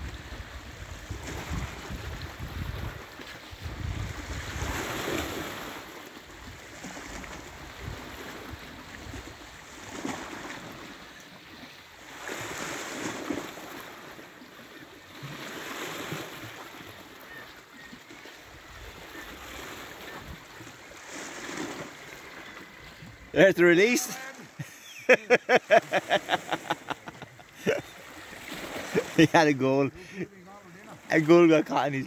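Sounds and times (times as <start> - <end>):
wind rumbling on microphone: 0.0 - 5.8, 6.5 - 9.4.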